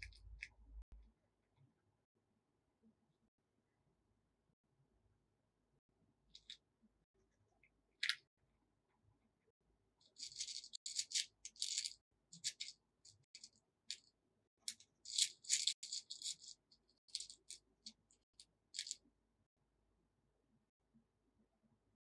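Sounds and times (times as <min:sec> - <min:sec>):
plastic beads clicking and rattling: 0:10.1 - 0:14.1, 0:14.7 - 0:19.0.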